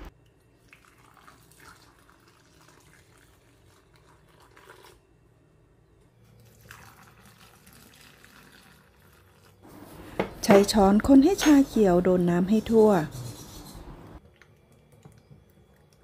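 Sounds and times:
faint water trickling: 0:00.2 - 0:05.0, 0:06.2 - 0:09.8.

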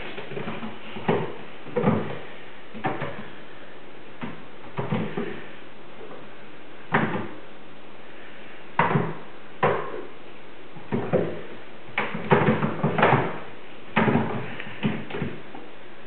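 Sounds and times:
kittens' feet thumping on roof: 0:00.0 - 0:03.3, 0:10.8 - 0:13.4.

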